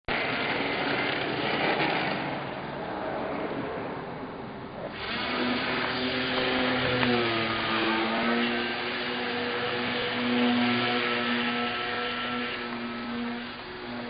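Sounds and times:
model plane propeller rushing hiss: 4.8s - 14.0s
electric motor whine: 4.9s - 14.0s.

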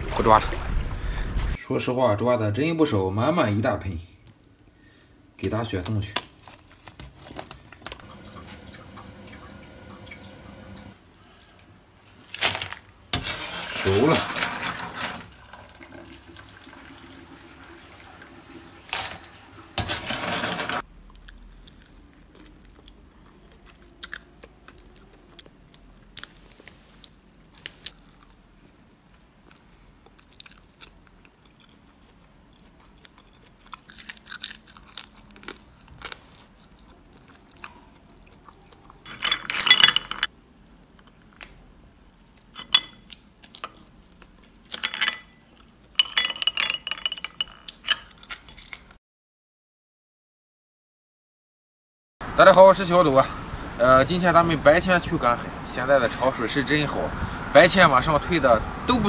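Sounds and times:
spatula scraping in wok: 13.1s - 15.3s, 19.8s - 20.8s.

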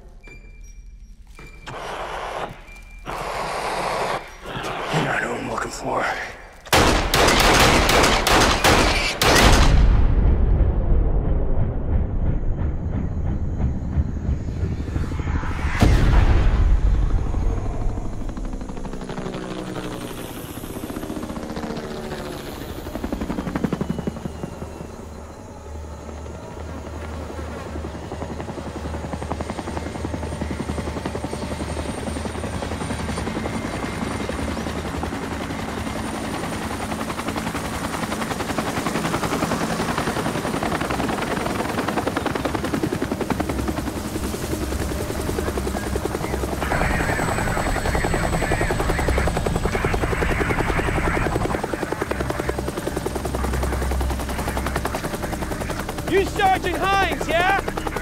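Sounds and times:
helicopter rotor beating: 1.7s - 9.6s, 11.6s - 15.7s, 16.9s - 58.0s
low falling drone: 10.0s - 21.5s.

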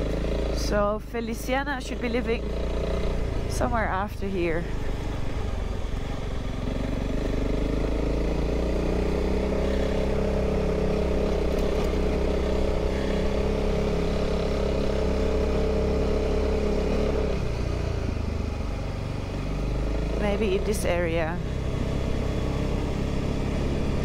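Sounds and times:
low steady rumble: 0.0s - 6.8s, 20.1s - 23.2s
motorcycle engine running: 0.0s - 24.0s.

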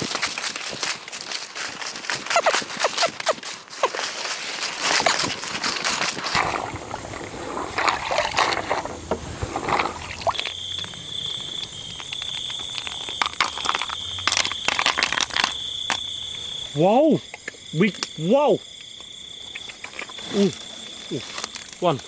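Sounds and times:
cricket trilling: 0.0s - 22.0s
water sloshing: 4.2s - 15.5s.

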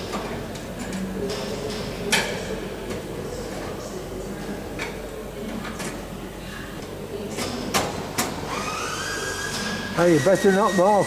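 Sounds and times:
workshop hum: 0.0s - 11.0s.

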